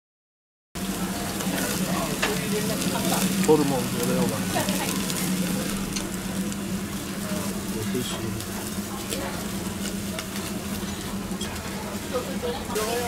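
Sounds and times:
faint background chatter: 0.8 - 13.0
meat sizzling on grill: 0.8 - 13.0
steady low hum: 0.8 - 13.0.

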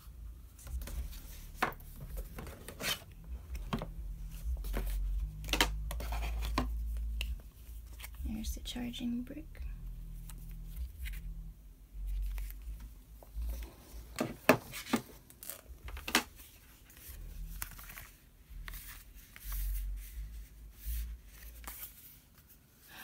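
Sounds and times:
packaging rustling: 13.4 - 19.6.

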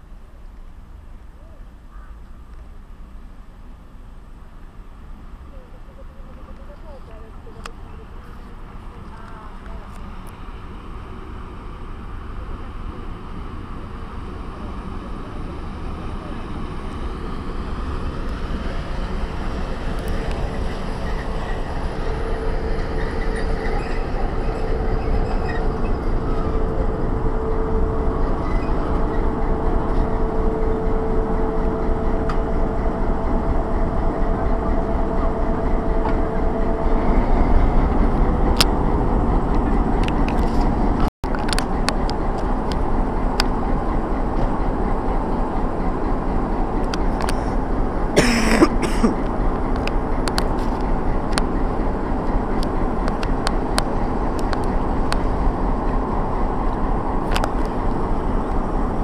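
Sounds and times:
electric train rolling past: 0.0 - 59.0
steady whine: 3.7 - 59.0.

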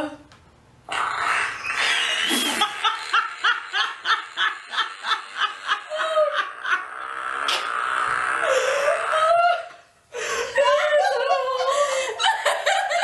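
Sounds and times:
women laughing: 2.2 - 6.9, 8.4 - 13.0.

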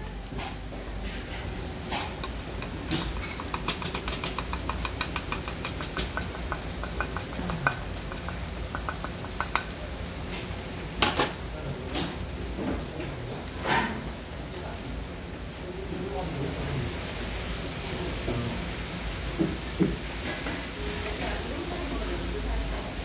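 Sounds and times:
scraping against iron pan: 0.4 - 9.7
chopsticks clinking on ceramic bowl: 1.9 - 9.7.

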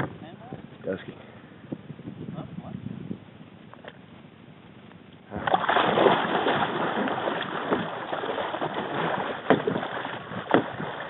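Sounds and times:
water splashing: 5.3 - 11.0.

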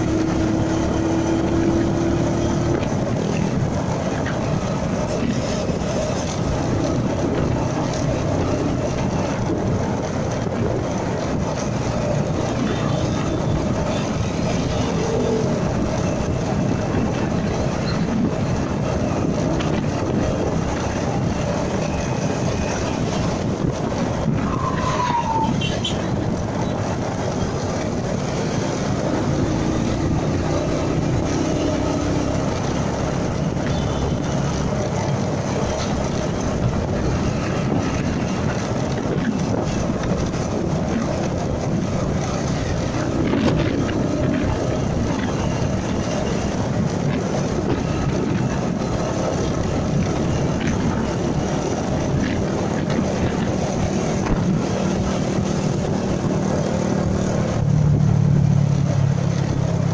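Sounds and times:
motorcycle engine riding: 0.0 - 59.9
other motorcycles and trucks: 0.0 - 59.9
wind rush: 0.0 - 59.9.

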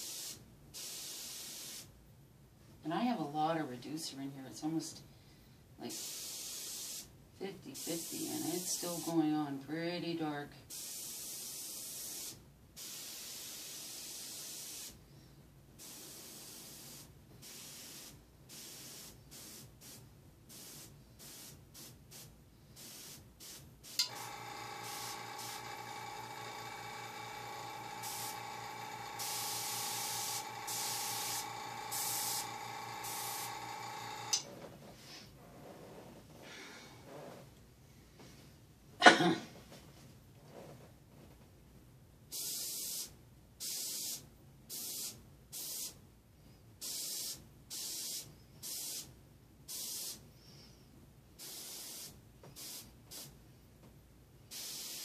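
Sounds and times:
airbrush spraying hiss: 0.0 - 1.9, 5.9 - 7.1, 7.8 - 9.3, 10.7 - 15.0, 15.8 - 34.4, 42.3 - 46.0, 46.8 - 49.1, 49.7 - 50.2, 51.4 - 53.3, 54.5 - 55.0
compressor humming and whining: 24.0 - 34.7.

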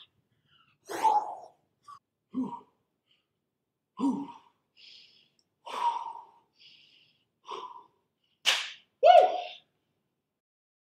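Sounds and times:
person breathing hard: 1.8 - 8.4
sharp crack: 8.4 - 8.8.

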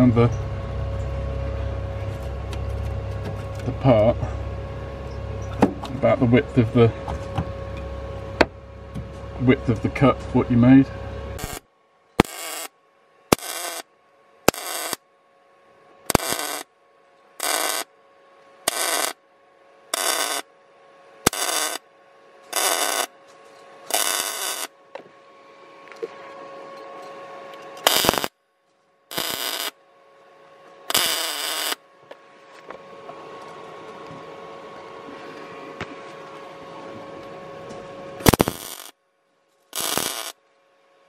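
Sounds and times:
steady hum: 0.0 - 41.0
welder arc crackling bursts: 11.4 - 11.6, 12.2 - 12.7, 13.3 - 15.0, 16.1 - 16.7, 17.4 - 17.9, 18.7 - 19.2, 19.9 - 20.5, 21.2 - 21.8, 22.5 - 23.1, 23.9 - 24.7, 27.8 - 28.4, 29.1 - 29.8, 30.9 - 31.8, 38.2 - 39.0, 39.8 - 40.4.

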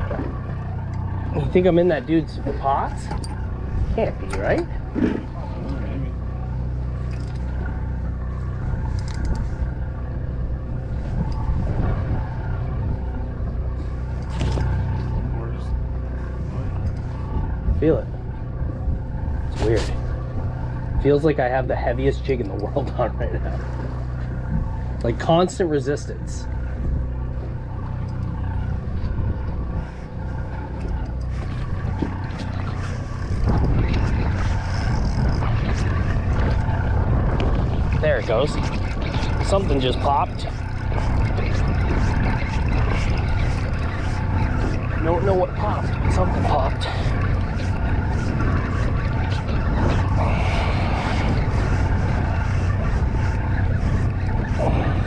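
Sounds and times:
boat engine droning: 0.0 - 55.0.

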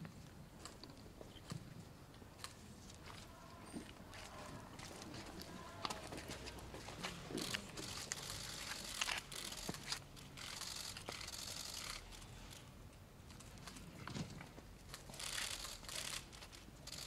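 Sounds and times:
camera shutter clicks: 7.4 - 12.3.

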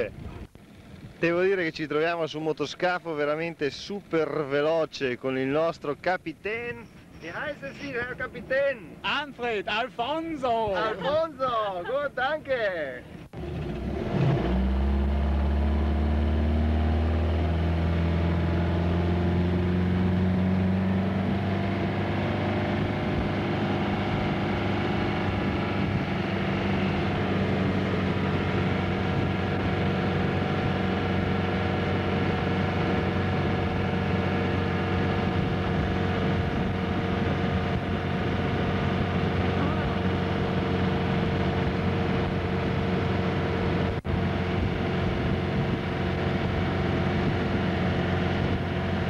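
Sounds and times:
speedboat engine running hard: 13.2 - 49.0.

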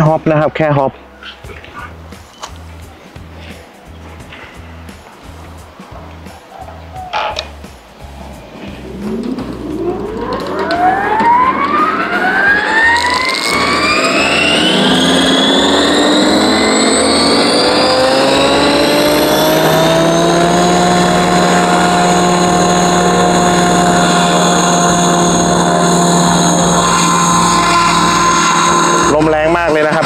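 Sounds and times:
model helicopter motor whine: 8.8 - 29.8.

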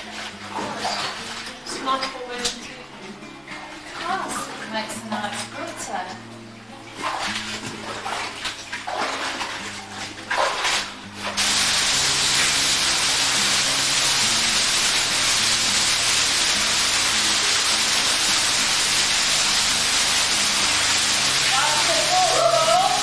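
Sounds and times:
waterfall rushing: 11.4 - 23.0.

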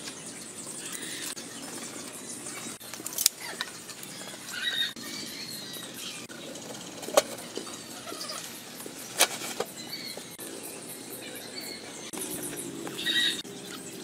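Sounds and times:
bird chirps: 3.4 - 6.5, 7.4 - 14.0.

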